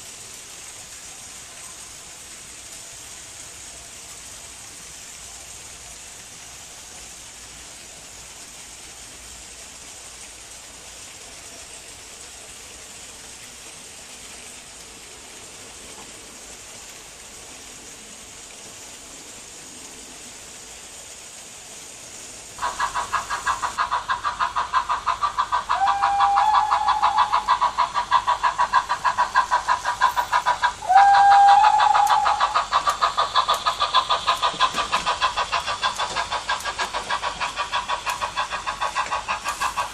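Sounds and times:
model steam locomotive chuffing: 0.0 - 39.9
model train rolling on track: 0.0 - 39.9
train whistle blasts: 25.8 - 27.4, 30.8 - 32.6.

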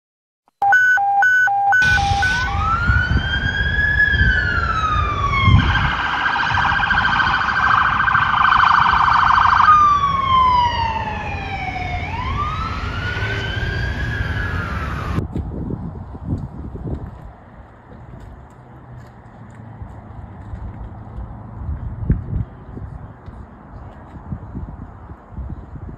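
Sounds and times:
police siren wailing and warbling: 0.6 - 15.2
low road rumble: 0.6 - 25.9.

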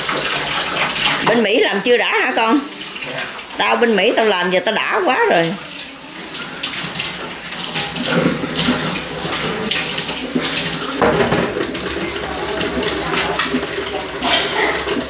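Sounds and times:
dishes being washed: 0.0 - 15.0
tap water splashing into sink: 0.0 - 15.0.

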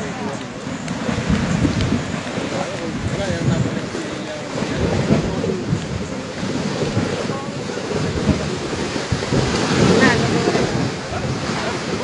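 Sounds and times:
crowd voices: 0.0 - 12.0
steady rushing noise: 0.0 - 12.0.

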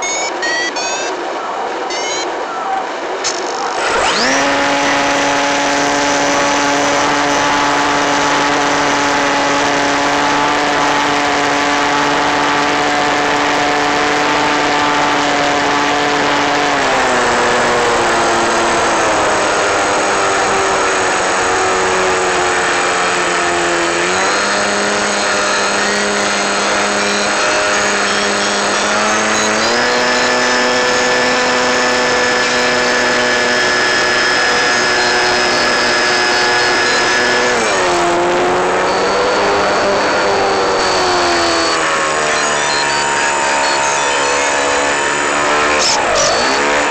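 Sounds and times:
model plane motor whine: 3.3 - 46.9.

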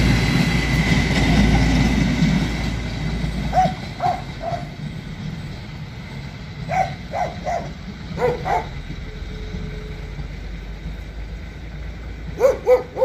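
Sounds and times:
diesel railcar rumbling: 0.0 - 13.0
dog barking: 3.5 - 4.8, 6.7 - 8.8, 12.4 - 13.0.

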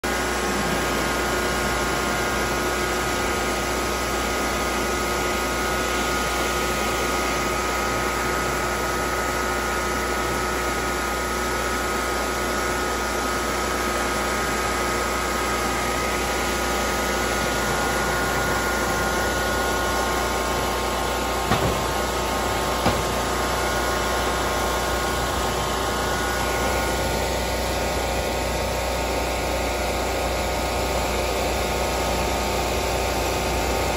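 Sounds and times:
snow blower engine running: 0.0 - 33.9
brief knocks: 21.5 - 22.0.

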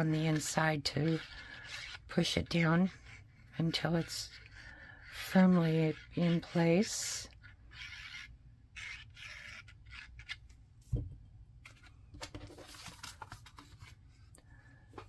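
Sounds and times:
cardstock rustling: 11.7 - 14.0.

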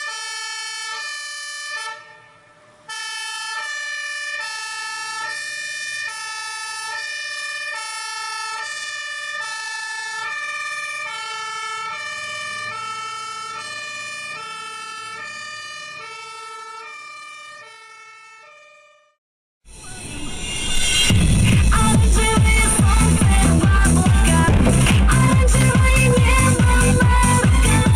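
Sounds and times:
two-tone fire engine siren: 0.0 - 24.7
loud music: 21.0 - 27.9.

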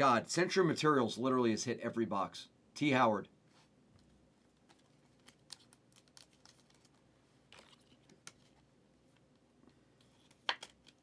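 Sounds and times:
plastic wrapping crinkling: 4.6 - 8.5
cards being handled clicking: 4.7 - 8.6, 10.3 - 11.0.

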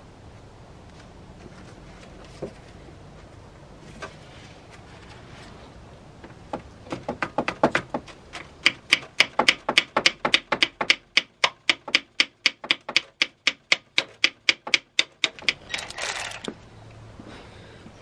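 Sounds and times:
hand ratchet clicking: 10.6 - 16.5.

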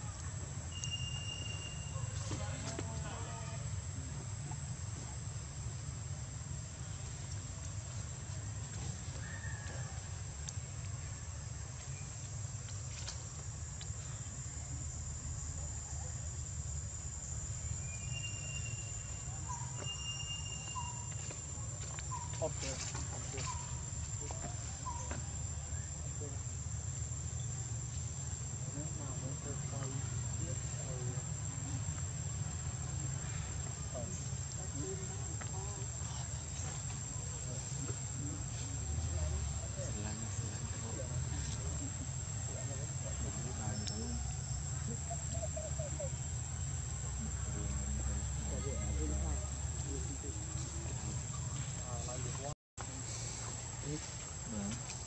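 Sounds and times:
high-pitched insect drone: 0.6 - 2.1, 17.1 - 21.5
faint short chirps: 0.7 - 2.2, 17.8 - 21.4
faint voices: 27.8 - 55.0.

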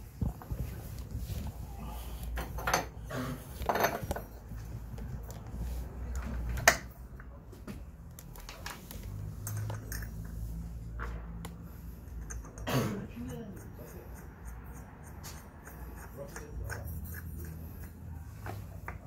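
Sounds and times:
metal parts clinking: 9.4 - 10.3.

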